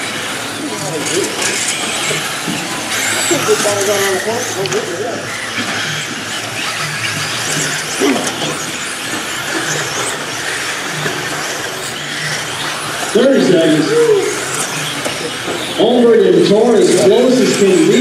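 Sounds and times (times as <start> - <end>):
electric toy car motors whining: 0.0 - 18.0.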